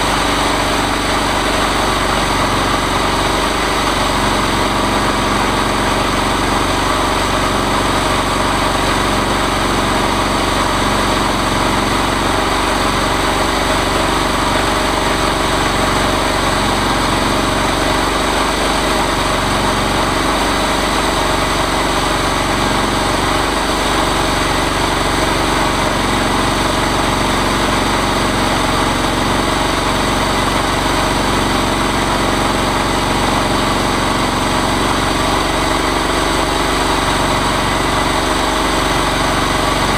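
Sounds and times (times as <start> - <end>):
chainsaw engine running steadily: 0.0 - 39.9.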